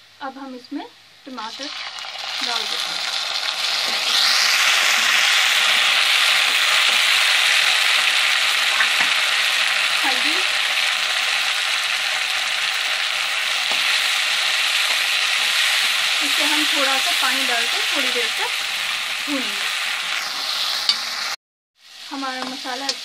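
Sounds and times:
tomatoes sizzling in hot oil: 0:00.3 - 0:23.0
spoon stirring in a pan: 0:11.2 - 0:16.2.

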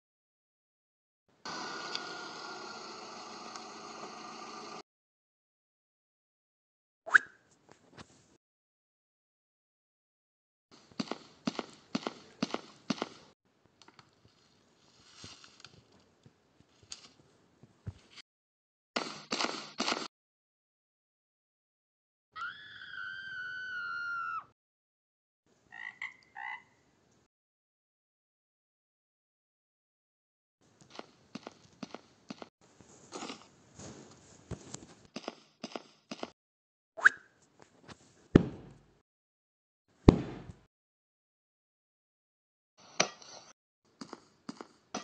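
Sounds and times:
high-pitched scream: 0:22.3 - 0:24.5
frog croaks: 0:25.7 - 0:26.8.

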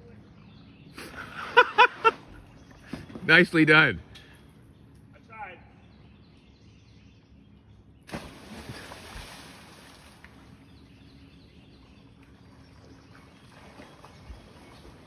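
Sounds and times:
loud splash into water: 0:08.1 - 0:10.0
swimming splashes: 0:08.1 - 0:10.6.

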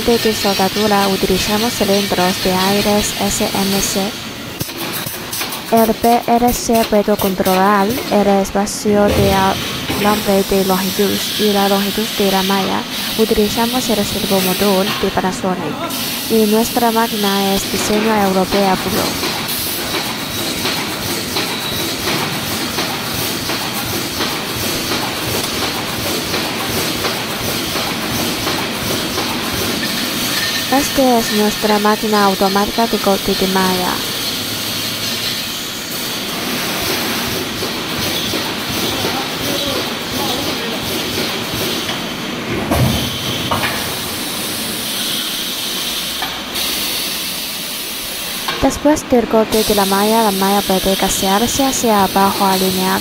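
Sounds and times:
welding machine clatter: 0:00.1 - 0:08.1, 0:17.2 - 0:42.1
machine knocks: 0:09.0 - 0:10.5
short thump: 0:09.1 - 0:10.1.

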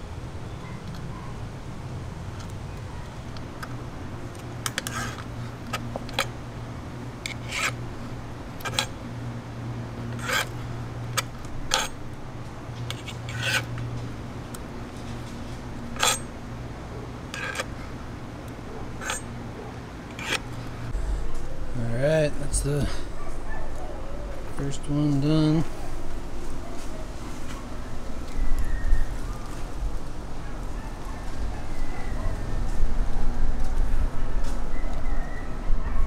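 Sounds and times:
steady low hum: 0:00.0 - 0:36.0
screwdriver clicking on metal: 0:11.1 - 0:12.0, 0:17.3 - 0:17.7, 0:19.0 - 0:19.3, 0:20.1 - 0:20.6.

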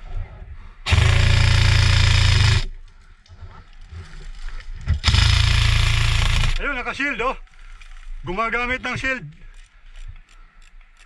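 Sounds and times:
airsoft rifle full-auto burst: 0:00.9 - 0:02.7, 0:05.0 - 0:06.7.

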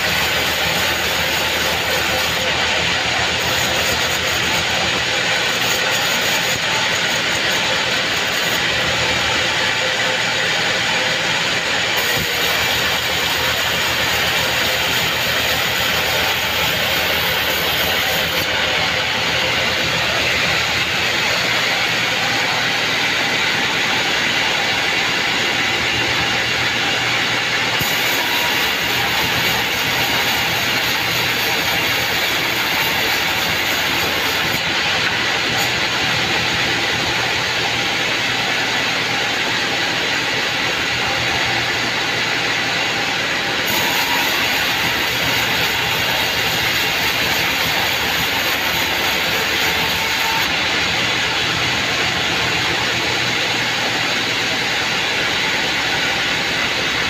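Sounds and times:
band saw ripping board: 0:00.0 - 0:08.7, 0:27.8 - 0:35.8, 0:43.6 - 0:50.5.

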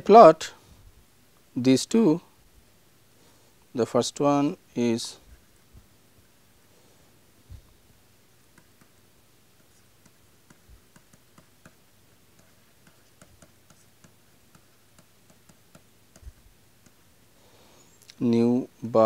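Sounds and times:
stylus tapping on pen tablet: 0:08.5 - 0:09.0, 0:09.6 - 0:17.0.

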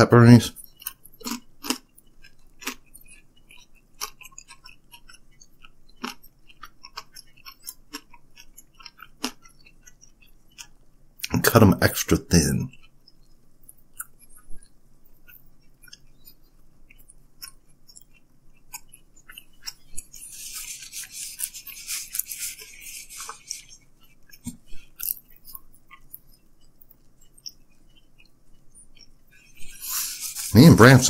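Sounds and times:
chewing pizza: 0:00.2 - 0:31.0
wet mouth clicks and smacks: 0:00.6 - 0:11.4, 0:12.7 - 0:30.5
hissy crunching: 0:29.3 - 0:31.0.

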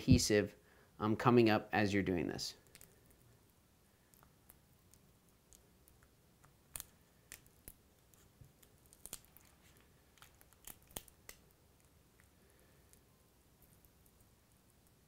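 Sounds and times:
adhesive crackling and snapping: 0:02.6 - 0:03.2, 0:04.1 - 0:12.3.

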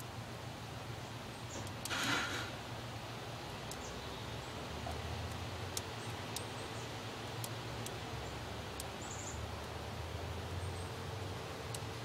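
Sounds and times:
faint sharp ticks: 0:03.5 - 0:03.9, 0:07.4 - 0:08.0.

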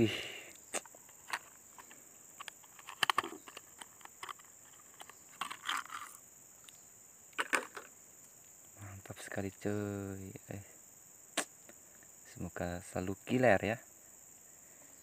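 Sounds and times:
plastic case clicks: 0:01.2 - 0:06.1, 0:07.4 - 0:07.9.

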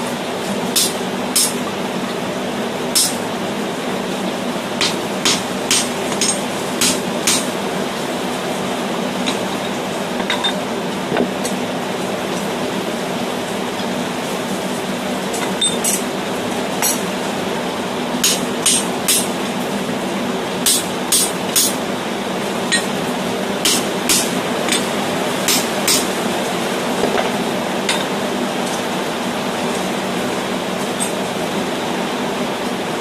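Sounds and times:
hammer striking steel punch: 0:00.8 - 0:01.6, 0:03.0 - 0:03.2, 0:04.8 - 0:07.5, 0:18.2 - 0:19.3, 0:20.7 - 0:21.8, 0:23.6 - 0:24.9, 0:25.5 - 0:26.1.

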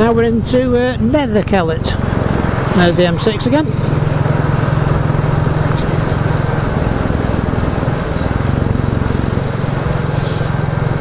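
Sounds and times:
motorcycle engine thumping: 0:01.9 - 0:10.6.

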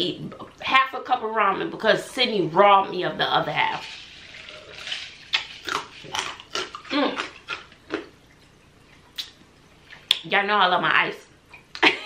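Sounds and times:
ice crunched between teeth: 0:04.5 - 0:08.1.

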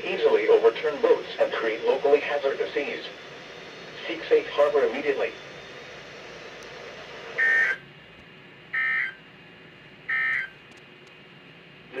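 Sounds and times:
faint radio hiss: 0:00.0 - 0:08.5.

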